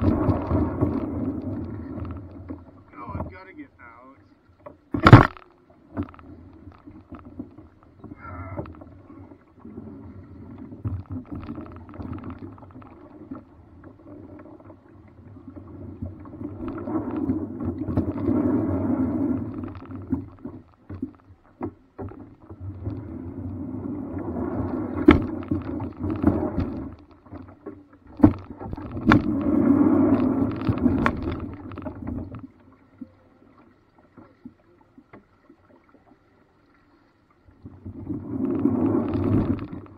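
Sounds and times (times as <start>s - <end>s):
water around paddled boat: 0.0s - 39.9s
sharp knocks: 4.9s - 5.4s.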